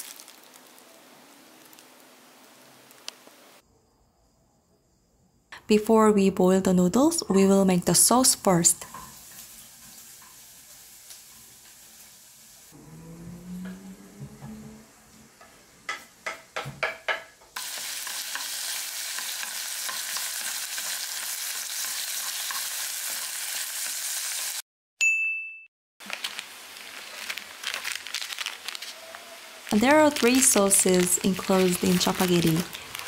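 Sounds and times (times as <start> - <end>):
meat and onions sizzling in a wok: 0.0 - 3.0, 8.8 - 12.8, 17.6 - 24.6, 26.0 - 33.0
short bright ding: 25.0 - 25.7.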